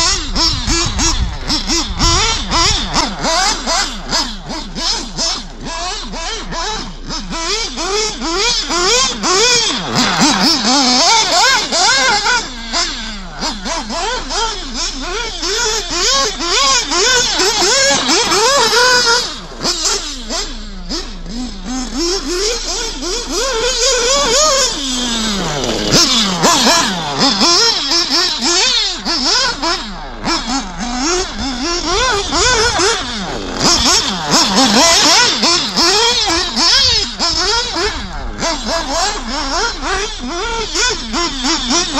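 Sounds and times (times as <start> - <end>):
model car engine revving: 0.0 - 41.9.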